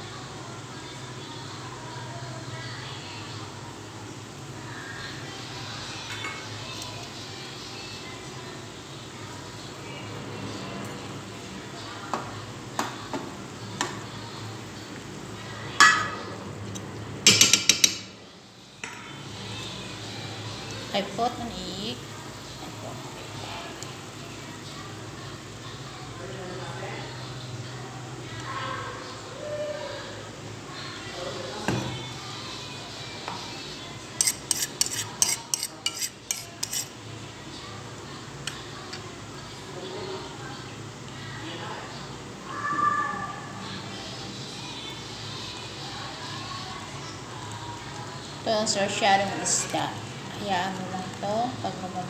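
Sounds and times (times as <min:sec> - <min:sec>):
spatula scraping a wok: 0:34.1 - 0:37.0.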